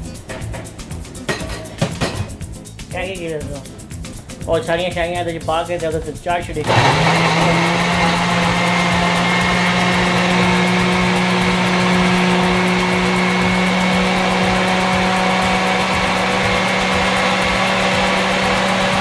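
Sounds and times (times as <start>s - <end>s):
food processor motor whine: 6.6s - 19.0s.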